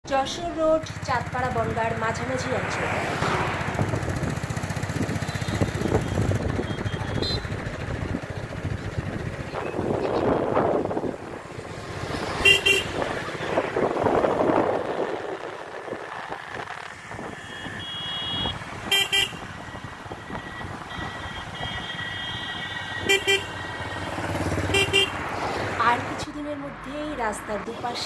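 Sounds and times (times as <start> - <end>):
moving vehicle running noise: 0.0 - 28.0
vehicle horn double beeps: 5.2 - 7.6, 12.4 - 13.0, 17.4 - 19.5, 20.1 - 24.0, 24.6 - 25.1.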